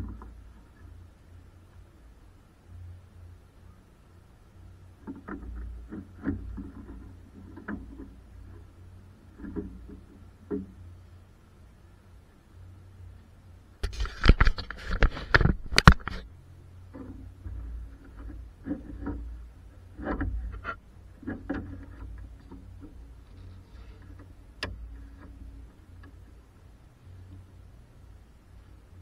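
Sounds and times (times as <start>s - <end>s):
clattering knocks and scrapes: 5.0s - 10.8s, 13.8s - 26.3s.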